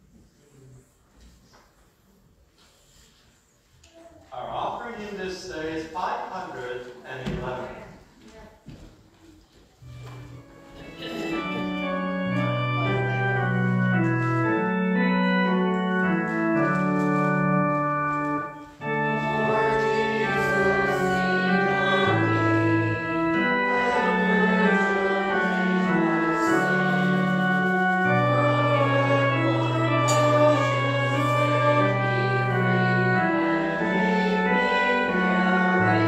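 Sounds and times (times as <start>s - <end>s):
church organ chords: 9.8s - 36.0s.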